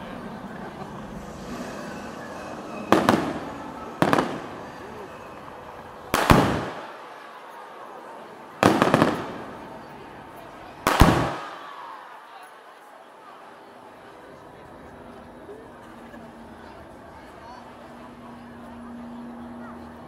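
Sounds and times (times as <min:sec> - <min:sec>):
fireworks bangs: 0:00.8 - 0:07.5, 0:08.4 - 0:11.8.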